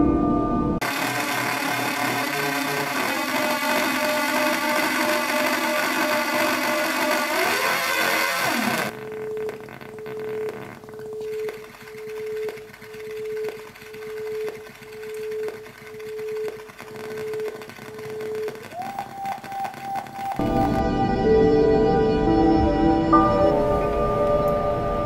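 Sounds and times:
glitchy synthesizer drone: 0.7s - 25.0s
pulsing synthesizer tone: 19.2s - 25.0s.

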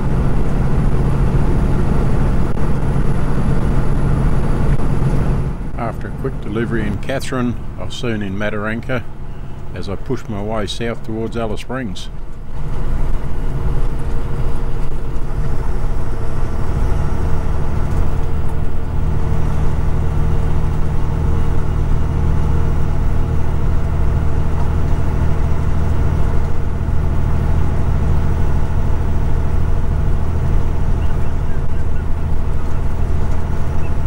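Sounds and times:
truck engine and tyres droning: 0.0s - 34.0s.

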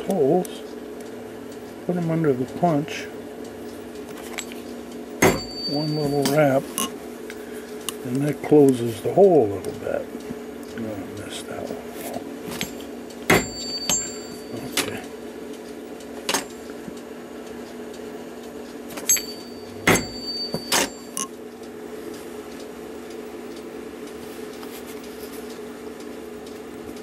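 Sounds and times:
steady hum: 0.0s - 27.0s
hammer tapping on metal punch: 5.2s - 7.0s, 12.6s - 14.9s, 19.0s - 21.3s.

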